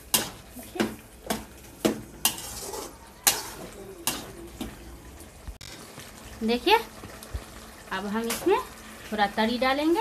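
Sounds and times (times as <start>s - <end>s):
spoon stirring and scraping pan: 0.0s - 6.1s
food sizzling in pan: 0.0s - 10.0s.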